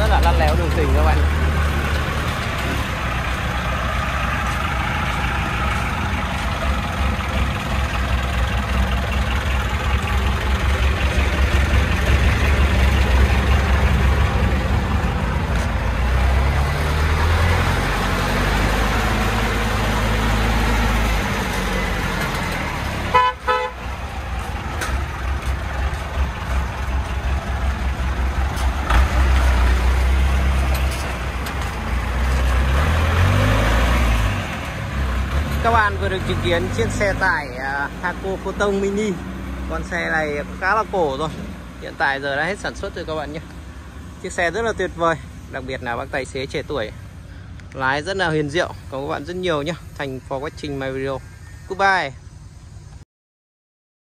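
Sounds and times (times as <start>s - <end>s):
truck engine running: 0.0s - 50.9s
short horn toot: 23.0s - 23.8s.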